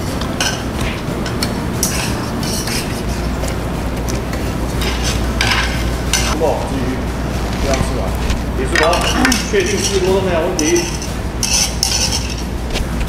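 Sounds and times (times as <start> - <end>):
low steady hum: 0.0 - 13.0
metal utensils clinking on pots: 0.2 - 3.5, 4.8 - 6.4, 8.6 - 12.5.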